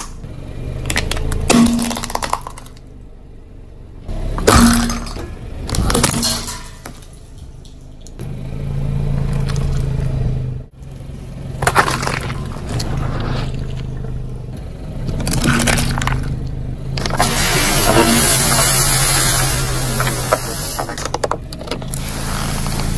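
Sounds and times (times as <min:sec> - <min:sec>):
low steady hum: 0:00.0 - 0:22.9
tyre crushing plastic cups: 0:00.9 - 0:02.8, 0:04.4 - 0:07.8, 0:11.6 - 0:13.7, 0:15.1 - 0:21.4.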